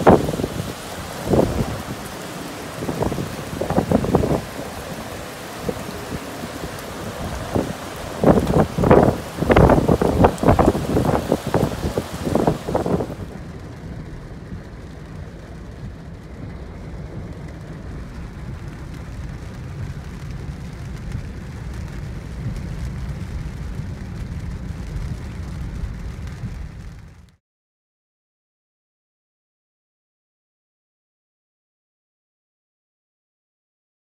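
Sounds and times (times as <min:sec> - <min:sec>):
gusty wind: 0:00.0 - 0:27.3
heavy rain: 0:00.0 - 0:27.4
car cabin rumble: 0:02.7 - 0:13.3.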